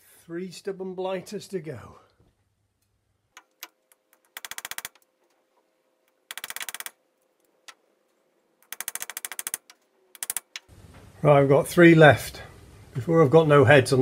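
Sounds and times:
rapid metallic clicking: 3.4 - 5.1, 6.2 - 7.0, 8.6 - 10.7.

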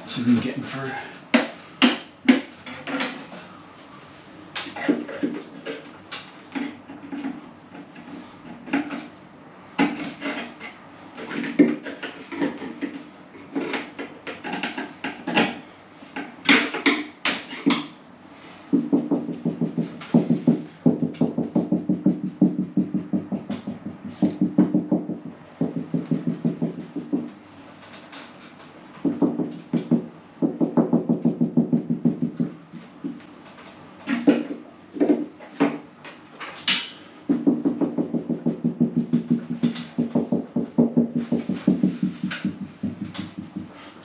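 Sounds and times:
cable rods rattling and knocking: 37.4 - 43.8.

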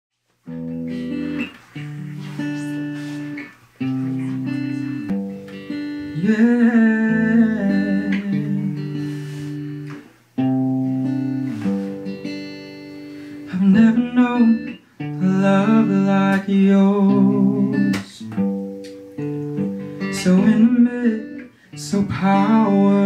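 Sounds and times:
acoustic guitar and keyboard chords: 0.4 - 23.0
wavering wordless vocal: 6.2 - 9.0, 13.5 - 18.4, 20.2 - 23.0.

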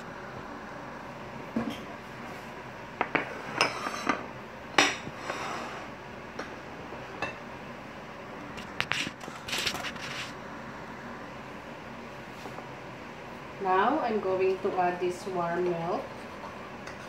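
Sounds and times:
dishes clinking on countertop: 3.0 - 4.2, 4.8 - 5.5.

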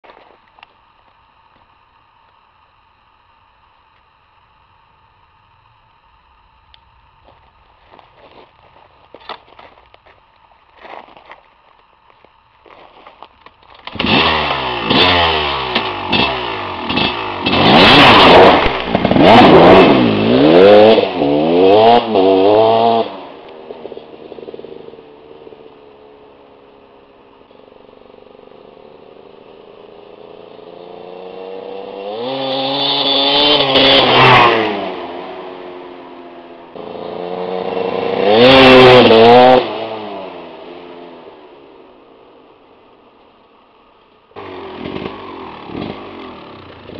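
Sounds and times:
motorcycle engine revving: 12.6 - 43.2, 44.3 - 46.9.

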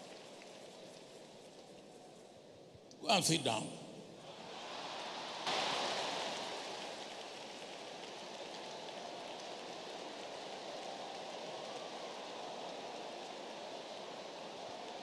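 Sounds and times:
audience applause: 3.1 - 15.0.

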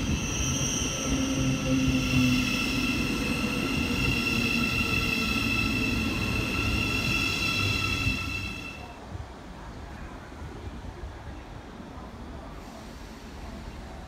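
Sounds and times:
train wheels rumbling: 0.0 - 8.9.

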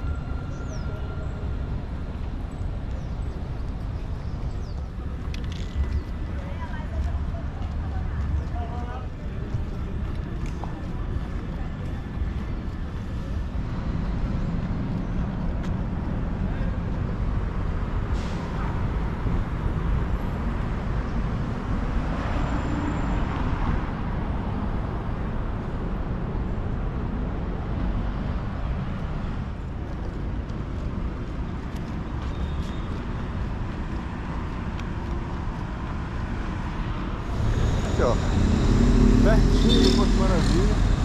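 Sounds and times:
traffic road noise: 0.0 - 41.0
vehicle passing close: 36.1 - 41.0.

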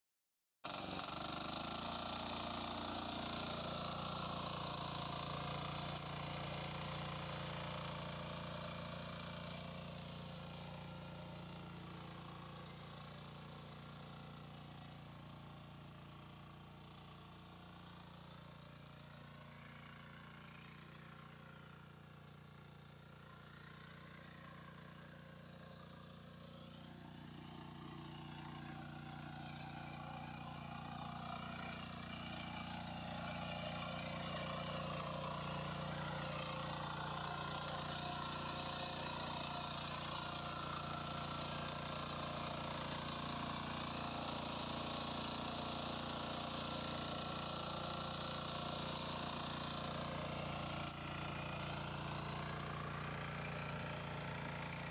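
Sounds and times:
power tiller engine running: 0.6 - 54.9.

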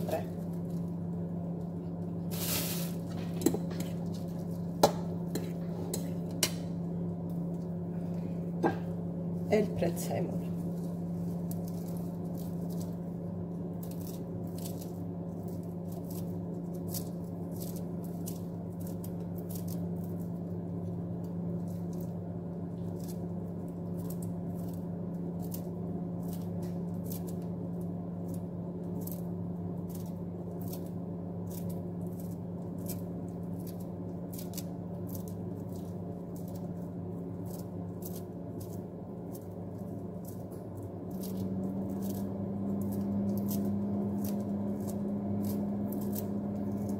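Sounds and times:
low electrical hum: 0.0 - 46.9
scissors snipping herbs: 29.8 - 46.9.

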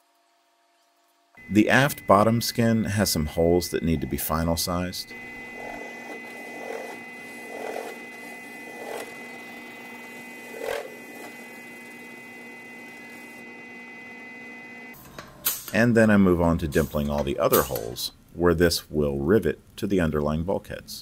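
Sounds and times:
drill press motor running: 3.3 - 15.2.

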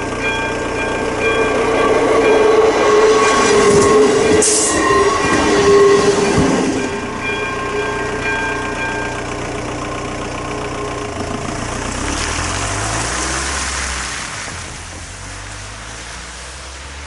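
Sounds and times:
level-crossing warning tones: 0.0 - 11.2
car engine running: 0.0 - 17.0
tyres hissing on wet road: 11.4 - 17.0.

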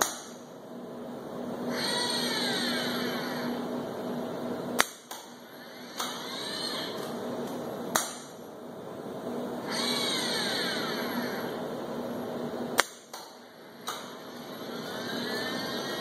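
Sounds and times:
robot arm servo motors whining: 1.7 - 3.6, 5.5 - 7.0, 9.7 - 11.5, 14.1 - 16.0.

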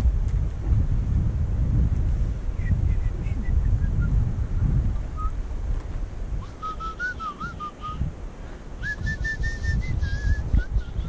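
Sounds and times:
wind rumbling on microphone: 0.0 - 11.0
person whistling a tune: 6.4 - 8.0, 8.8 - 11.0.

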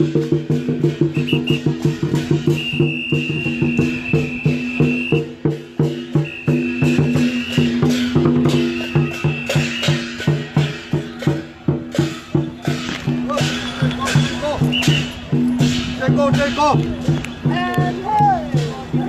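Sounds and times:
ringing gong and cymbals: 0.0 - 17.2
drum strikes: 0.0 - 19.0.

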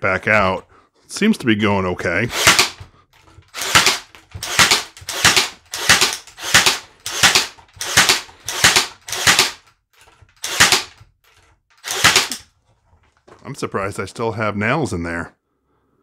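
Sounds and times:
nail gun firing into wood: 2.4 - 2.9, 3.5 - 9.7, 10.3 - 11.1, 11.8 - 12.5.

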